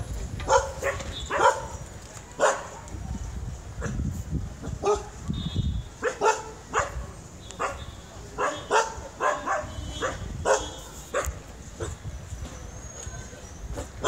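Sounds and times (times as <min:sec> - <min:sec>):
dog barking: 0:00.5 - 0:01.8, 0:02.4 - 0:02.9, 0:04.8 - 0:05.2, 0:06.0 - 0:12.0.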